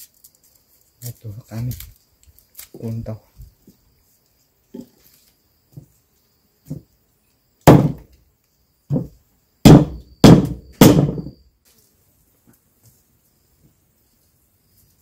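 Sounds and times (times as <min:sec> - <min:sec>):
sharp ringing knocks: 0:08.9 - 0:11.4.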